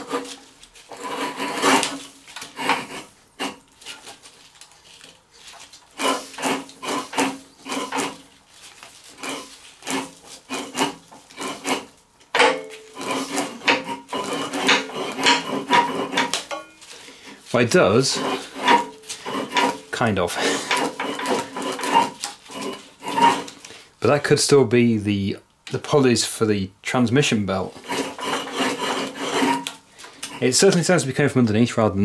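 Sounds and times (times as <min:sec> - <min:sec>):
engine turned over by hand scraping: 0:00.0 - 0:04.0, 0:05.9 - 0:08.3, 0:09.0 - 0:16.6, 0:18.0 - 0:23.6.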